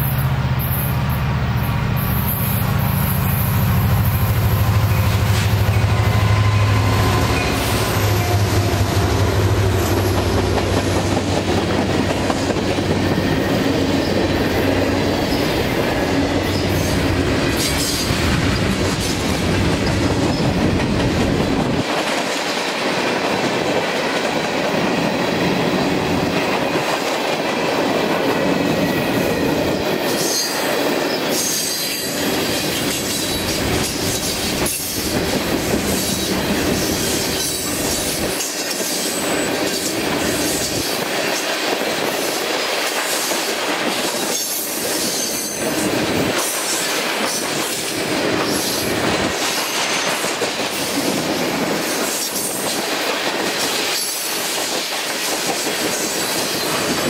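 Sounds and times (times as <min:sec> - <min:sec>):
diesel locomotive engine hum: 0:00.0 - 0:57.0
high wheel squeal: 0:01.6 - 0:09.0, 0:15.2 - 0:18.7, 0:28.6 - 0:35.0.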